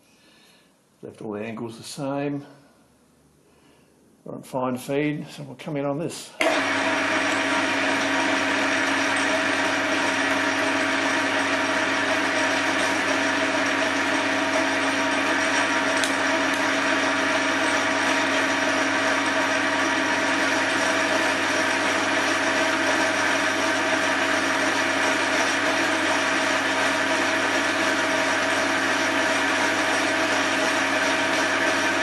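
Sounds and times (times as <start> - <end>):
lathe cutting steel bar: 6.4 - 32.0
metal lathe gears whirring: 7.2 - 32.0.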